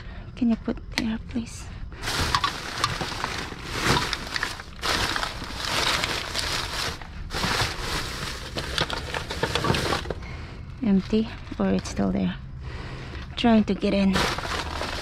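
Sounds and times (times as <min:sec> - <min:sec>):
plastic bags rustling and crinkling: 0:02.0 - 0:12.1, 0:13.8 - 0:15.0.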